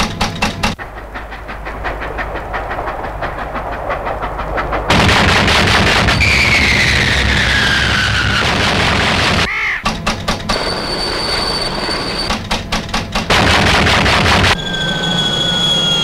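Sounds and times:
steady high whine: 0.6 - 9.5, 13.2 - 16.0
falling whistle: 5.7 - 8.7, 10.5 - 12.4, 14.4 - 16.0.

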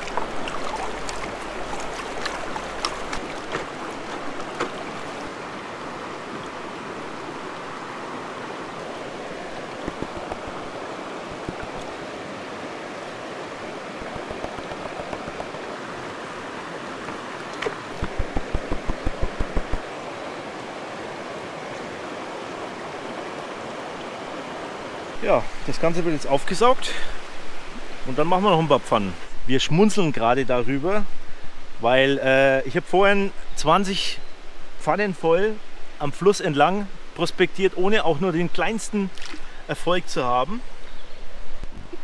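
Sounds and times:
creek running: 0.0 - 42.0.

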